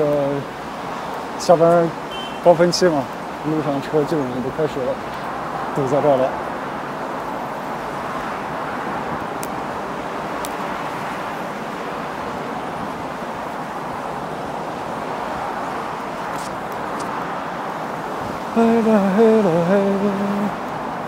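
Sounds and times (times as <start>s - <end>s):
highway traffic: 0.0s - 21.0s.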